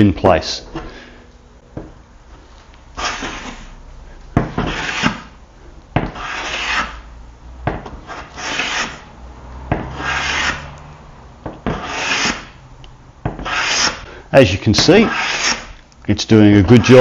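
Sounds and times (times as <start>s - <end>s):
hand plane shaving hiss: 3.0s - 3.8s, 4.6s - 5.3s, 6.0s - 7.0s, 8.0s - 9.0s, 11.6s - 12.6s, 13.4s - 14.1s, 15.0s - 15.8s.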